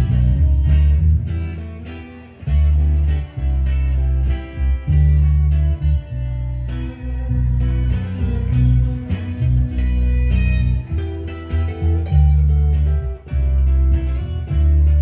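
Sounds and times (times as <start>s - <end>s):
deep bass notes: 0.0s - 15.0s
electric guitar: 0.0s - 15.0s.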